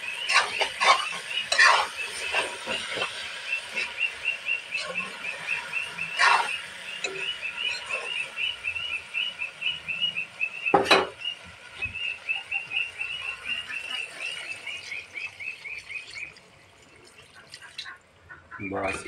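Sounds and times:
metal spatula clanging on pan: 0.3 - 3.1.

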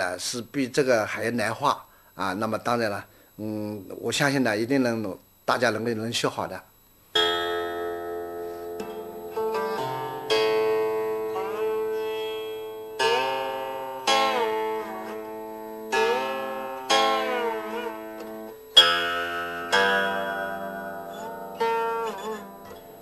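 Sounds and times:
plucked string instrument music: 7.2 - 23.0.

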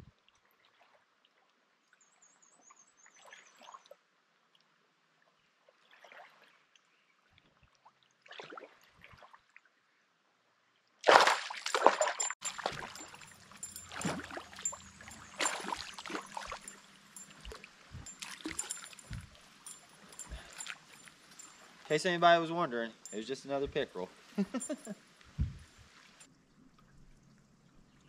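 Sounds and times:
fish splashing in water: 11.0 - 21.9.

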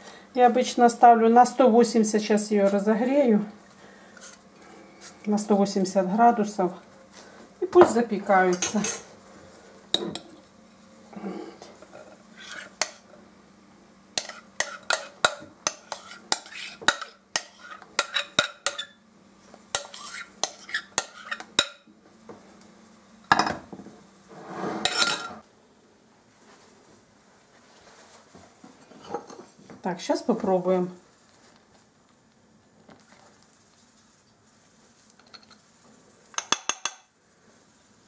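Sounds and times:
metal spoon scraping glass bowl: 12.4 - 13.0, 14.2 - 15.1, 15.7 - 19.0, 19.8 - 21.5, 24.5 - 25.4.

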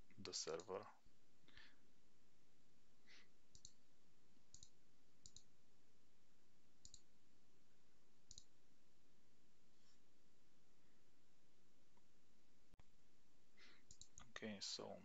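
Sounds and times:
computer mouse clicks: 3.5 - 3.8, 4.5 - 5.5, 6.8 - 7.1, 8.3 - 8.5, 13.8 - 14.3.

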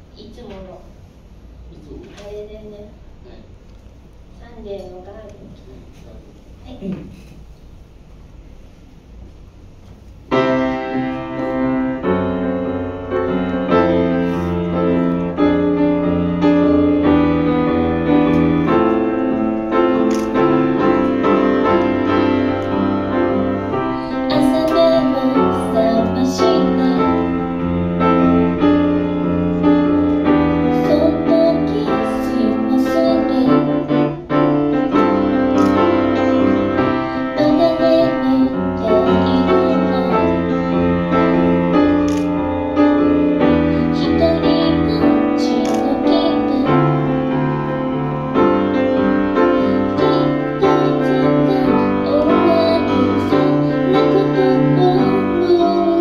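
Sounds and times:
piano chords: 10.2 - 56.0
woman singing: 24.1 - 27.5, 30.7 - 34.0, 37.2 - 40.6, 43.8 - 47.1, 49.6 - 56.0.

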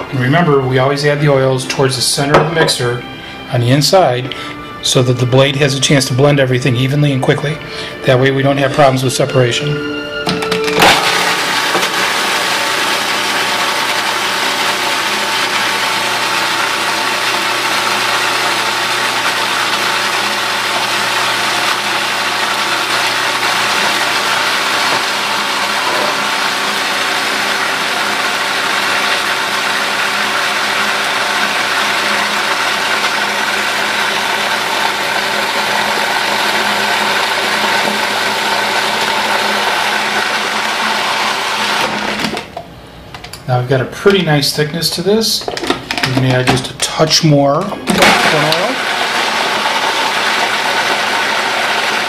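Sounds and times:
food processor motor whirring: 10.3 - 42.6, 47.9 - 52.0.

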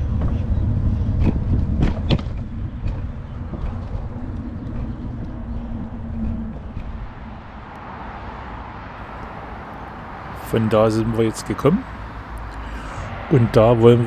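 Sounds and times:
wind rumble on microphone: 0.0 - 10.6
bike rolling noise: 0.0 - 14.0
steady low hum: 0.0 - 14.0.

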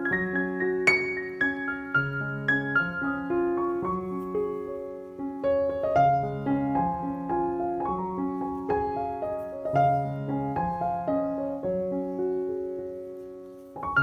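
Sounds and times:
calm piano melody: 0.0 - 14.0.

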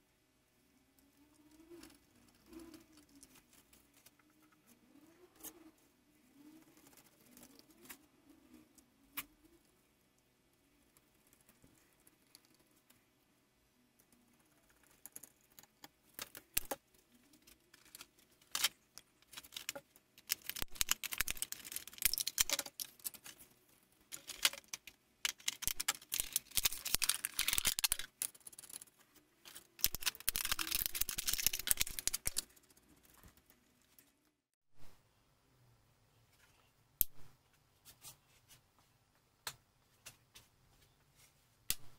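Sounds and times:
plastic packaging crackling: 17.8 - 23.4, 24.1 - 28.4, 29.5 - 32.6
scissors cutting plastic: 17.8 - 23.4, 24.1 - 28.8, 29.5 - 32.5.

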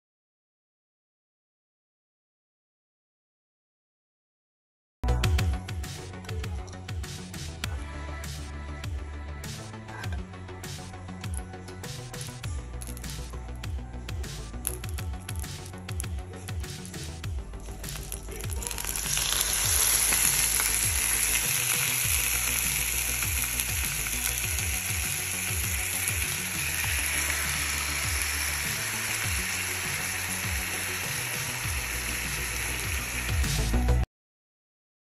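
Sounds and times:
chicken sizzling in hot oil: 17.9 - 34.0.

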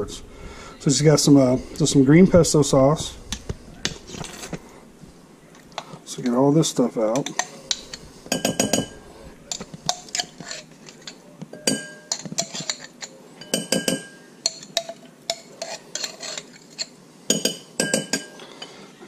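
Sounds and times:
metal spoon clinking in glass jar: 7.2 - 18.4.

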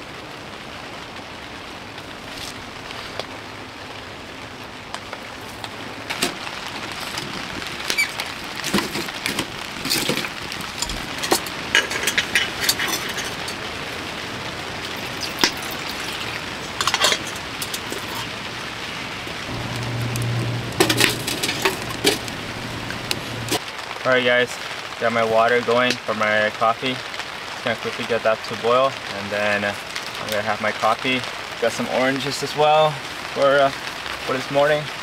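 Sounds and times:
rain on a tent tarp: 0.0 - 35.0
water pouring into a metal pot: 8.0 - 18.6
metal cookware clinking: 9.8 - 13.6, 14.9 - 18.3, 20.7 - 22.3.

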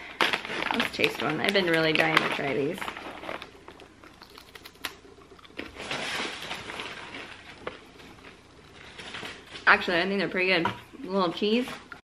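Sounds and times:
crunching and chewing cracker: 2.8 - 9.6.

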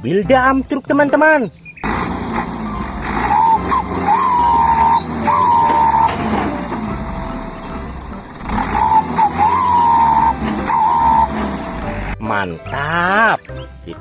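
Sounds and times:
diesel engine running: 1.8 - 12.2
hydraulic hoist whine: 1.8 - 12.2.

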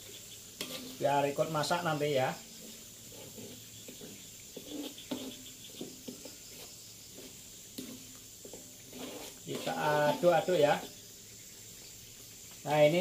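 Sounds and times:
ladle scraping in a wok: 0.0 - 11.8
crickets chirping: 0.0 - 13.0
paste frying: 0.0 - 13.0.

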